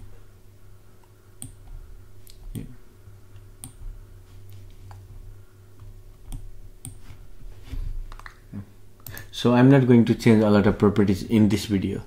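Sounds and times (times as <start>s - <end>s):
low steady hum: 0.0s - 12.0s
computer mouse clicking: 1.0s - 2.7s, 3.3s - 3.8s, 5.8s - 7.1s, 9.0s - 9.3s.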